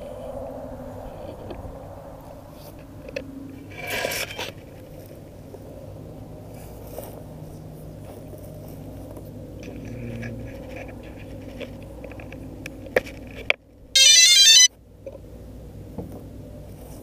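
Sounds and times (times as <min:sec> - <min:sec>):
electronic chime: 0:14.0 - 0:14.7
faint high beeps: 0:14.0 - 0:14.7.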